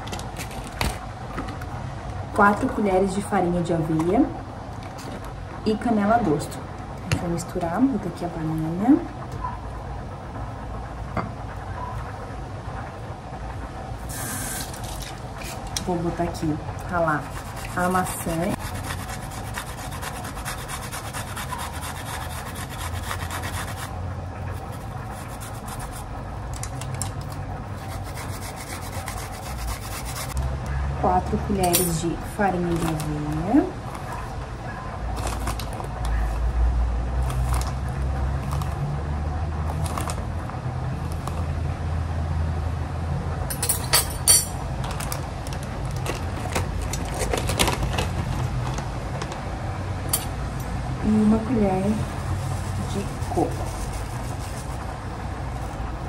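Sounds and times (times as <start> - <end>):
steady low hum: 0.0 - 56.0
apple rasping on metal grater: 16.8 - 26.2, 27.7 - 30.4, 51.9 - 54.9
plastic bag rustling: 35.1 - 36.5, 44.8 - 49.5.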